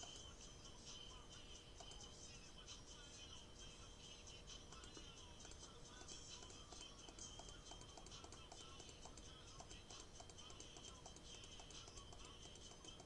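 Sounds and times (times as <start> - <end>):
faint background music: 0.0 - 13.0
computer mouse clicks: 4.7 - 13.0.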